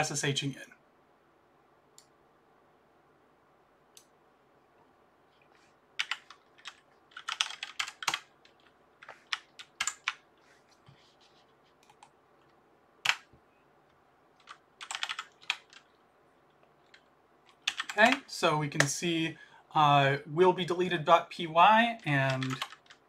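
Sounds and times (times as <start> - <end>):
typing on computer keyboard: 6.0 - 10.2, 13.0 - 13.3, 14.4 - 16.0, 16.8 - 18.2, 22.0 - 23.0.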